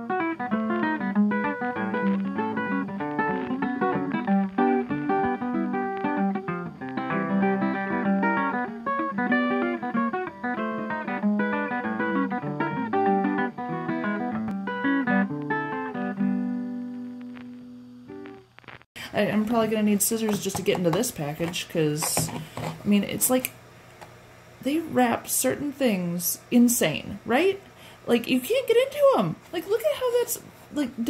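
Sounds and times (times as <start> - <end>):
plucked guitar tune: 0.0 - 18.5.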